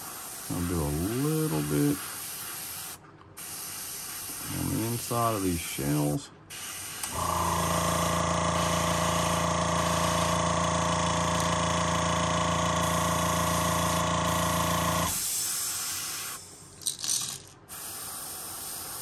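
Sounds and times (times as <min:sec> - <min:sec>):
air hissing: 0:00.0 - 0:05.5, 0:06.5 - 0:07.4, 0:12.8 - 0:16.7, 0:17.7 - 0:19.0
airbrush spraying spurts: 0:00.0 - 0:05.6, 0:06.5 - 0:07.3, 0:07.9 - 0:10.4, 0:12.8 - 0:16.6, 0:17.7 - 0:19.0
air compressor motor humming: 0:06.6 - 0:16.4.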